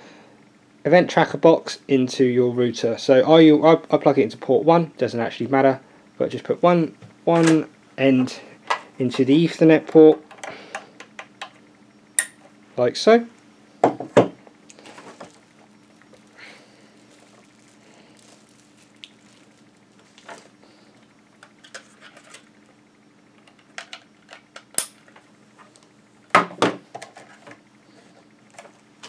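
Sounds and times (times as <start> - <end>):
faint steady hum: 0.0 - 29.0
cable handling rustles and clicks: 17.0 - 22.5, 26.9 - 27.6.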